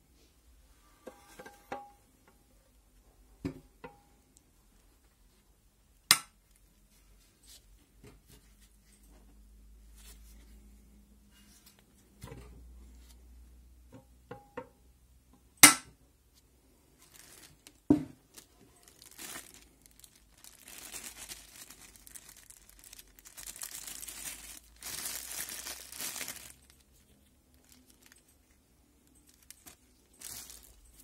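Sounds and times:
plastic bag crinkling: 0:17.0 - 0:31.0.

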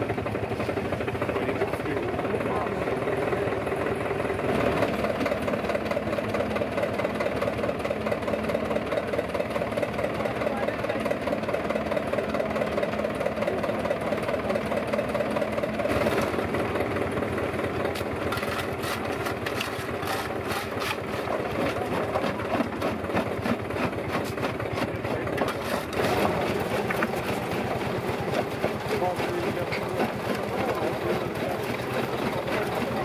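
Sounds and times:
tractor engine running under load: 0:00.0 - 0:33.0
stone crusher clattering: 0:17.9 - 0:33.0.

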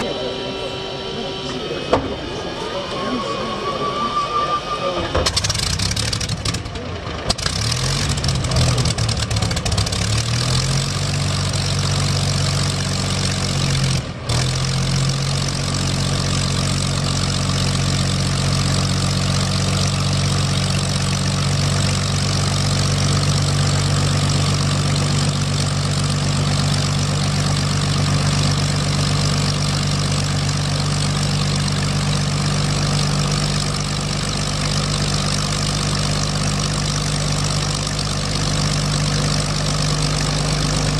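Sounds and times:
piston aircraft engine idling: 0:00.0 - 0:40.9.

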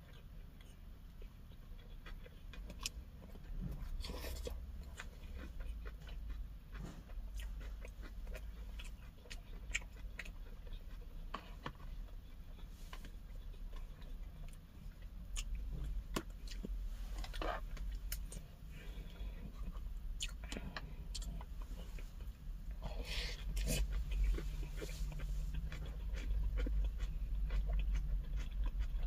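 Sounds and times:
low steady hum: 0:00.0 - 0:29.0
person chewing and crunching: 0:00.0 - 0:29.0.

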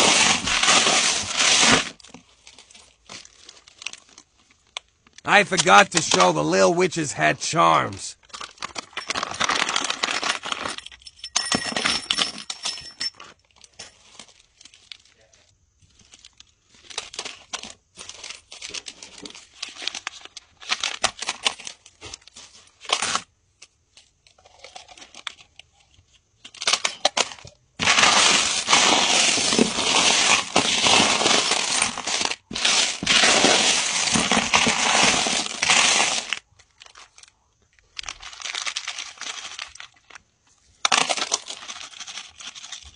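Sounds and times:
plastic bags crinkling: 0:00.5 - 0:05.2, 0:08.2 - 0:10.8, 0:27.8 - 0:40.2, 0:40.9 - 0:42.9.

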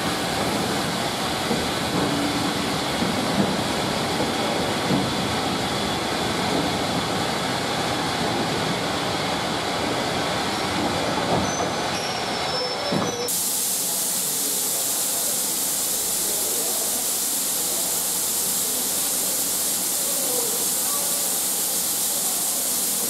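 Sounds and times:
steam locomotive hissing: 0:00.0 - 0:10.6, 0:11.2 - 0:23.0
train wheels rumbling on rails: 0:00.0 - 0:13.4
high wheel squeal: 0:11.4 - 0:13.3.

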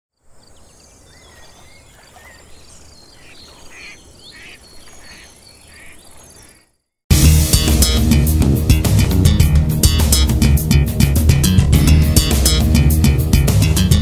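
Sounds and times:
birds chirping and calling: 0:00.4 - 0:06.8
harsh bird calls: 0:00.4 - 0:06.8.

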